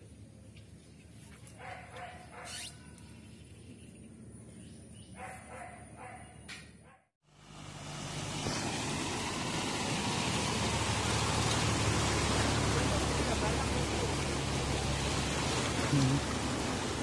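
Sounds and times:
faint dog barks: 1.5 - 2.9, 5.2 - 7.1
truck engine humming: 7.3 - 17.0
water splashing: 7.4 - 17.0.

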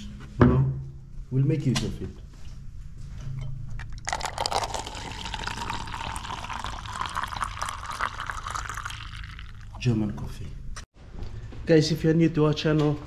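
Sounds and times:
coffee pouring into paper cup: 4.0 - 9.8.

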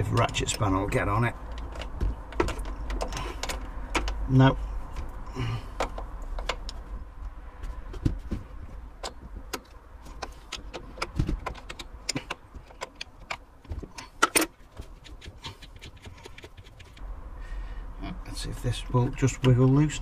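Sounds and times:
metal spanner clicking: 9.0 - 17.0.

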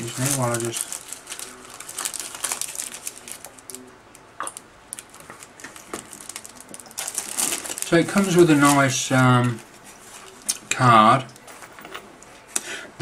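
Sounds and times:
plastic bag crinkling: 0.0 - 3.9, 4.9 - 10.8.

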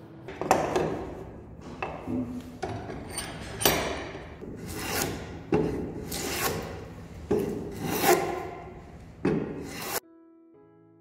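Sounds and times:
hand plane shaving wood: 4.4 - 10.0.

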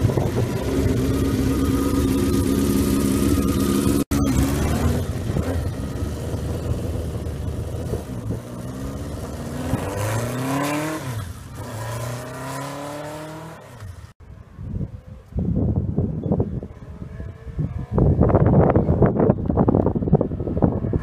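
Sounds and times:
motorcycle revving through gears: 0.0 - 14.2.

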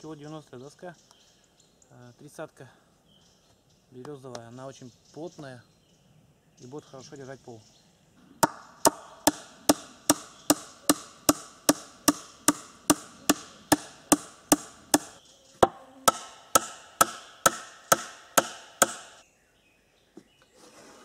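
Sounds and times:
hammer striking nail into wood: 8.4 - 19.2.

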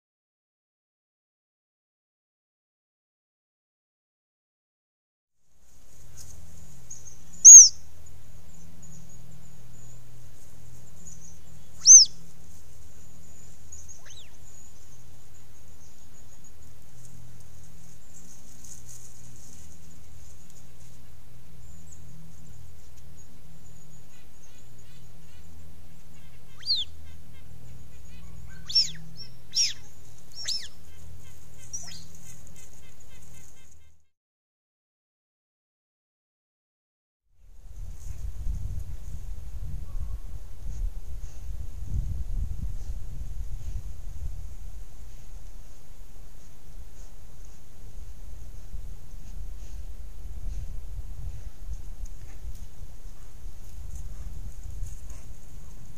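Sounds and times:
mountain lion kittens chirping: 7.0 - 7.8, 11.0 - 12.3, 13.4 - 14.6, 26.1 - 33.9.

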